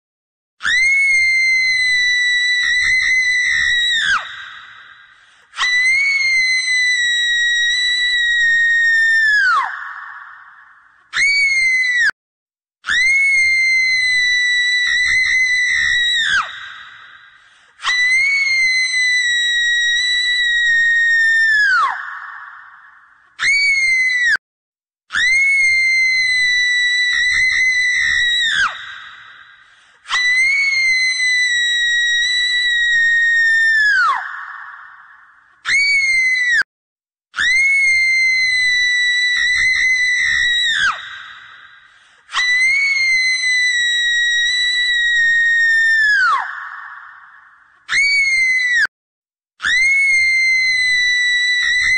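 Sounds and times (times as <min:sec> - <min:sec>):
high-pitched scream: 0:00.6 - 0:12.2, 0:12.8 - 0:24.4, 0:25.1 - 0:36.7, 0:37.4 - 0:48.9, 0:49.6 - 0:51.9.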